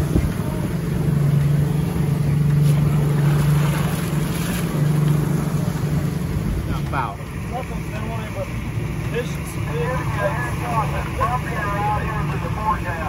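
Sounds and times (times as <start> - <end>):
motorboat engine humming: 0.0 - 13.0
water noise: 0.0 - 13.0
wind: 0.0 - 13.0.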